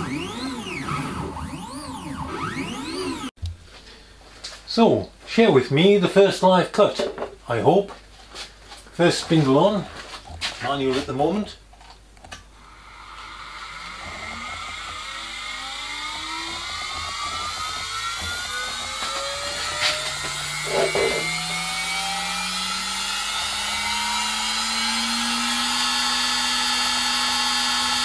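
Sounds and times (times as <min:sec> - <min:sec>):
spindle motor whine rising: 0:00.0 - 0:03.4, 0:12.6 - 0:28.0.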